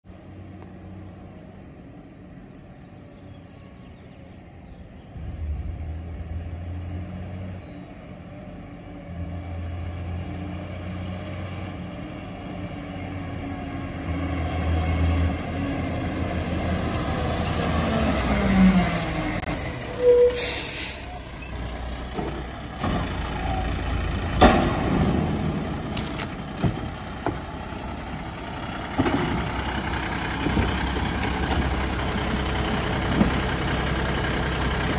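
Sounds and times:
garbage truck diesel engine: 0:00.1 - 0:34.9
air brakes hissing: 0:17.0 - 0:21.3.

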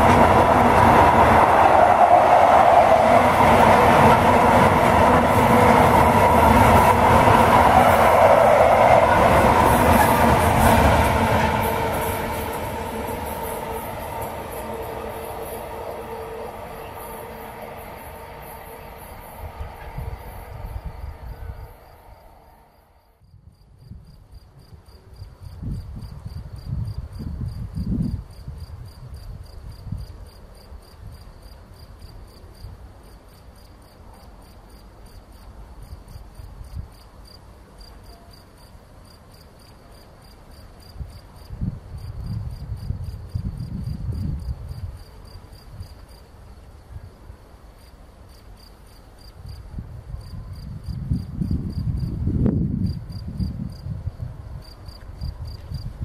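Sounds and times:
wind rumbling on microphone: 0:00.0 - 0:22.3, 0:23.3 - 0:30.2, 0:41.0 - 0:46.0, 0:49.4 - 0:56.0
insects chirping: 0:00.0 - 0:56.0.

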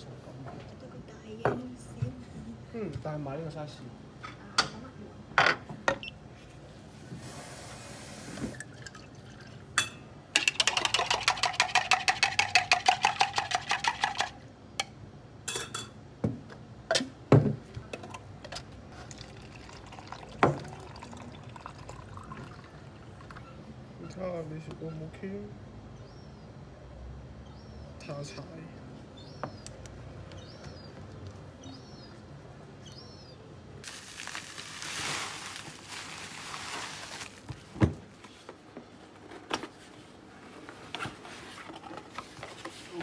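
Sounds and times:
plastic cocktail shaker rattling: 0:10.4 - 0:14.4.

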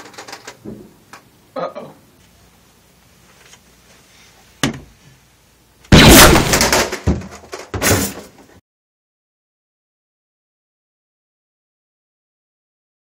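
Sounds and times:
door crashing: 0:05.9 - 0:08.4.

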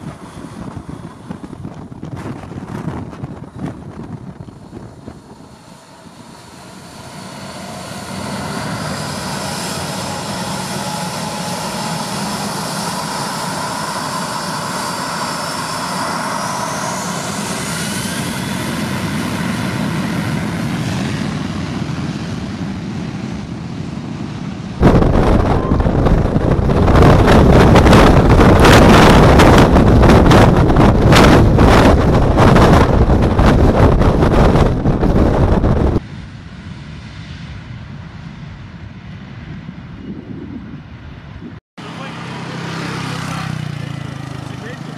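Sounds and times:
wind hitting microphone: 0:00.0 - 0:41.6
jet blast rushing: 0:00.0 - 0:44.8
jet engines whining: 0:00.0 - 0:44.9.

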